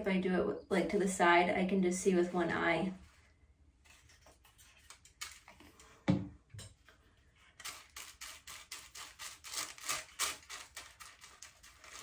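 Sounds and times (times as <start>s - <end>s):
brush scratching on foil: 7.5s - 12.0s.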